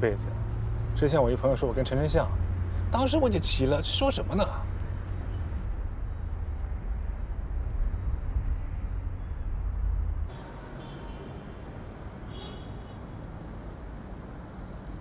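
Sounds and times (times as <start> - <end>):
road rumble inside car: 0.0 - 10.4.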